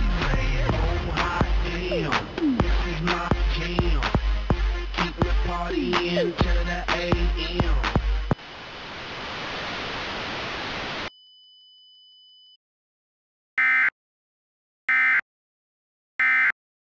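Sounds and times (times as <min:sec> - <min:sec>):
music: 0:00.0 - 0:08.4
static hiss: 0:07.9 - 0:11.1.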